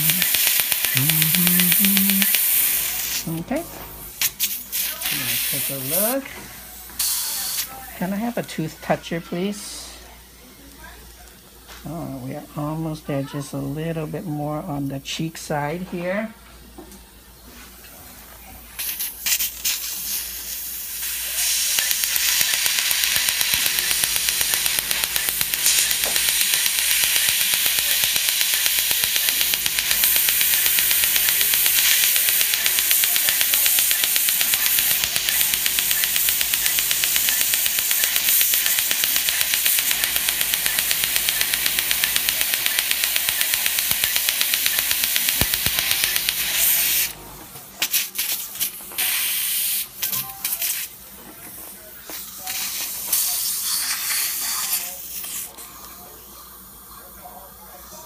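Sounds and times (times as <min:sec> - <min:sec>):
dental laser popping: 0:00.0 - 0:03.4, 0:20.9 - 0:47.2
water and air spray hissing: 0:04.2 - 0:06.2, 0:30.0 - 0:47.2.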